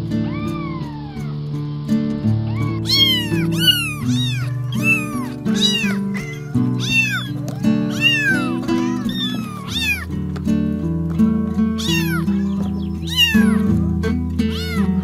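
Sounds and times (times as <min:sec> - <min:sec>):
cat meowing: 0:00.2 - 0:01.4, 0:02.4 - 0:10.1, 0:11.8 - 0:13.8, 0:14.4 - 0:15.0.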